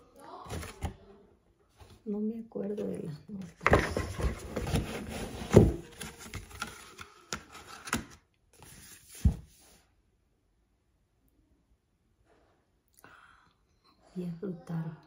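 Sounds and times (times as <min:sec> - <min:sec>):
cardboard rubbing and scraping: 0:03.7 - 0:06.8.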